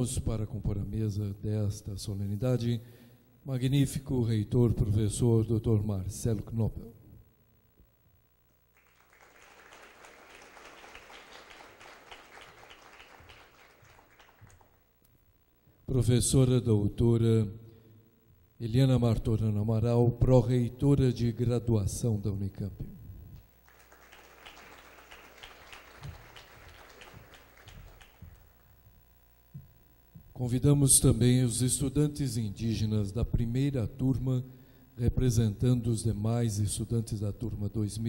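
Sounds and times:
audience applauding: 8.8s - 14.8s, 23.6s - 28.7s.

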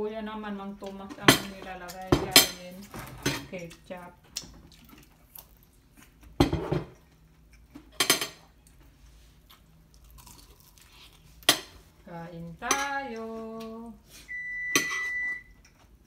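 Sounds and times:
crunching of fried chicken: 4.3s - 6.3s, 9.4s - 11.5s.

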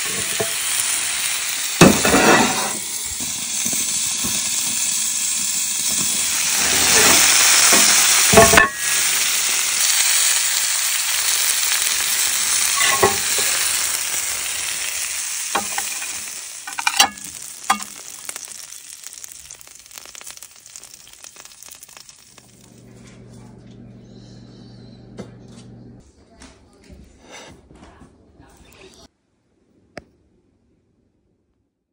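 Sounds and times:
steak sizzling in skillet: 0.0s - 22.8s
metal clanks: 12.8s - 13.5s, 15.6s - 18.0s.

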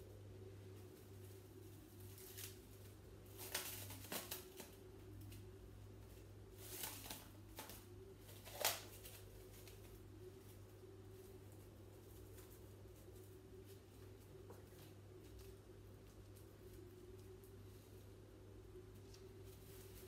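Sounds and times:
faint steady hum: 0.0s - 20.0s
cling film crinkling: 0.7s - 5.6s, 6.5s - 17.6s.

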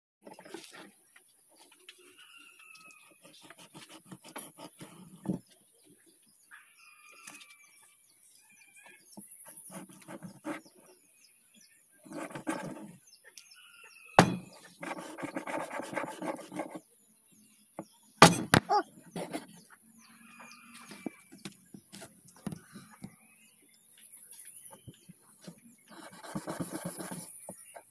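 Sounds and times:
birds chirping faintly: 0.2s - 27.9s
cleaver striking chopping board: 14.2s - 14.6s, 18.2s - 18.8s.

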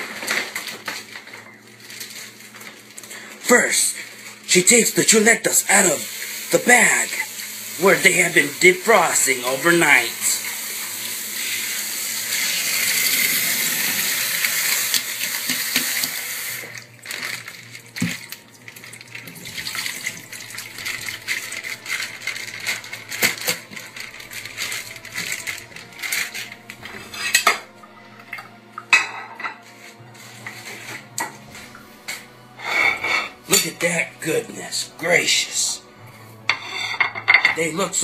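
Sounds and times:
wet plastic packaging rustling: 0.0s - 4.6s, 7.3s - 27.1s
tap water running into sink: 5.6s - 23.8s.

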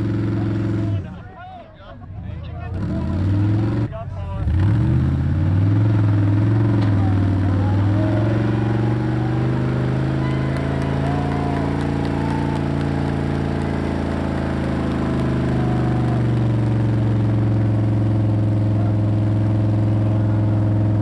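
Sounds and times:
truck engine under heavy load: 0.0s - 1.4s, 2.0s - 21.0s
tires spinning in sand: 2.6s - 21.0s.

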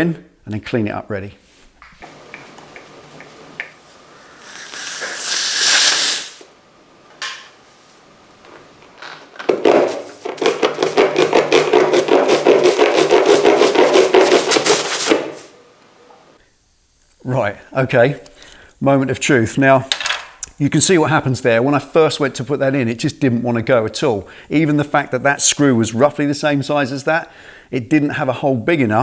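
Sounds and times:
air hissing out of tyre: 4.0s - 6.5s.

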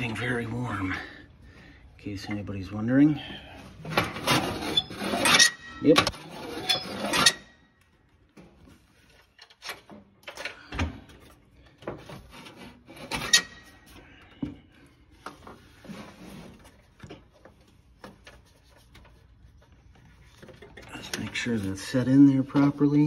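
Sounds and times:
cable scraping and rubbing: 3.9s - 7.6s, 12.0s - 13.8s, 15.6s - 16.9s.

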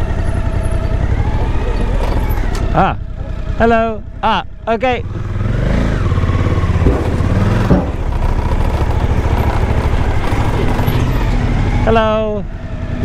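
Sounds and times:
motorcycle engine at low speed: 0.0s - 13.0s
short knocks: 6.7s - 8.4s.

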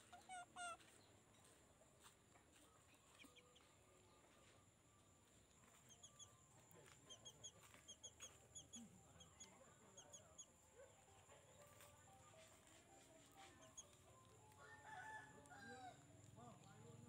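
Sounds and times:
faint high bird chirps: 2.5s - 10.9s, 13.2s - 14.7s.

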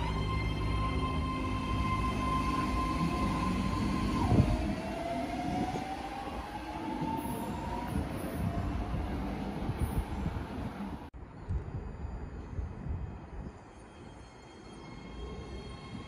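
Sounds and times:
train electric propulsion whine: 0.0s - 11.0s.

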